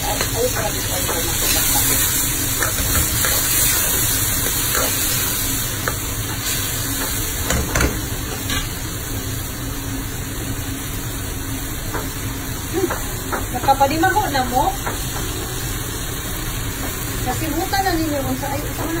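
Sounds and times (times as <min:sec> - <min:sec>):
food sizzling in a wok: 0:00.0 - 0:19.0.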